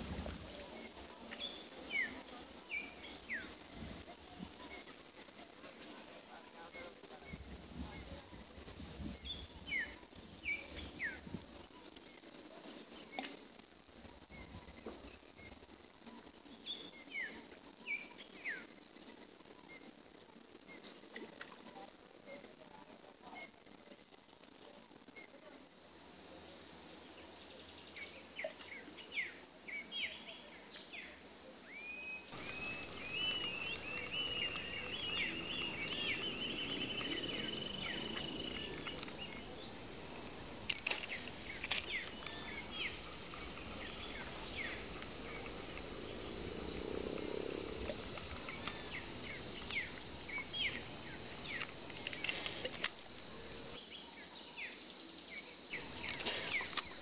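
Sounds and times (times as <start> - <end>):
background hiss: 0.0 - 57.0
short chirping calls: 31.7 - 46.3
high insect drone: 32.3 - 54.0.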